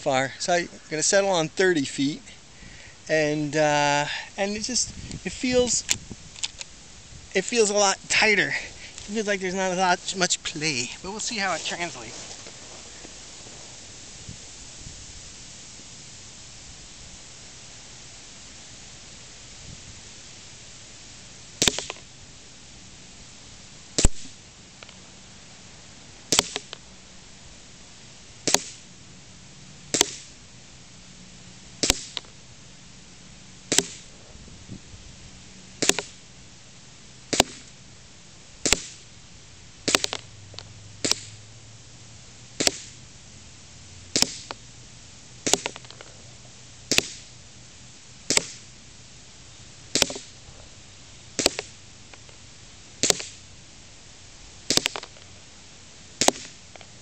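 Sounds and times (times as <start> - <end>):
airsoft pistol shots: 21.6 - 22.0, 24.0 - 24.3, 26.3 - 26.7, 28.4 - 28.8, 29.9 - 30.3, 31.8 - 32.2, 33.7 - 34.0, 35.8 - 36.2, 37.3 - 37.7, 38.6 - 39.0, 39.9 - 40.2, 41.0 - 41.3, 42.6 - 42.9, 44.2 - 44.5, 45.4 - 45.8, 46.9 - 47.2, 48.3 - 48.6, 49.9 - 50.3, 51.4 - 51.7, 53.0 - 53.4, 54.7 - 55.0, 56.2 - 56.6.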